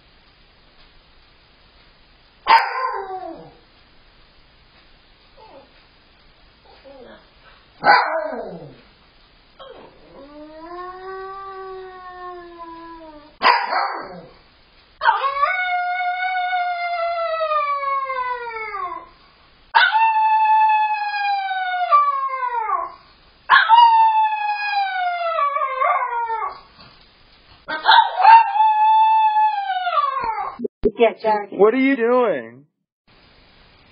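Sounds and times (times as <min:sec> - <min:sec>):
dog barking: 0:02.5 - 0:03.1, 0:07.8 - 0:08.5, 0:13.4 - 0:14.3, 0:27.7 - 0:28.5
dog howling: 0:02.6 - 0:03.6, 0:07.8 - 0:08.8, 0:09.6 - 0:14.4, 0:15.0 - 0:19.1, 0:19.8 - 0:26.7, 0:27.7 - 0:30.6.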